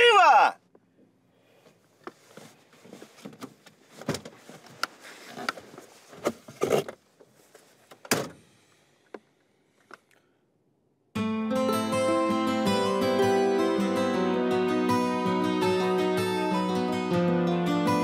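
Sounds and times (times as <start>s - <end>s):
rustling inside a car: 0.7s - 10.1s.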